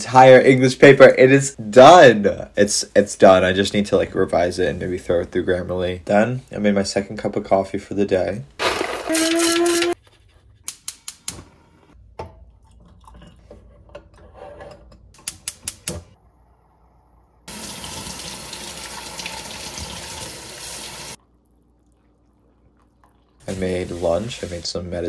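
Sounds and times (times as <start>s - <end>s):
tap water running onto metal pot: 17.5s - 21.2s.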